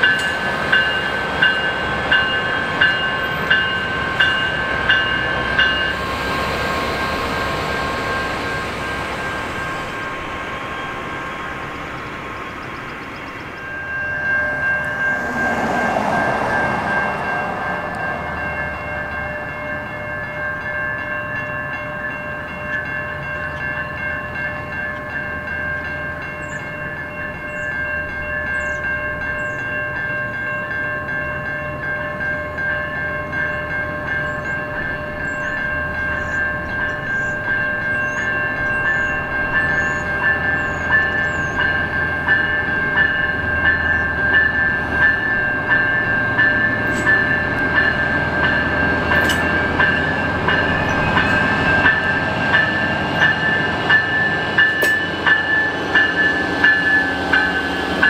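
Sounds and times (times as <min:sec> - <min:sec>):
train wheels clicking: 0:00.0 - 0:13.8, 0:34.2 - 0:58.0
diesel train rumbling: 0:00.0 - 0:58.0
level crossing bells ringing: 0:00.0 - 0:58.0
birds chirping: 0:06.5 - 0:19.5, 0:26.3 - 0:29.8, 0:33.4 - 0:42.8, 0:43.4 - 0:54.2.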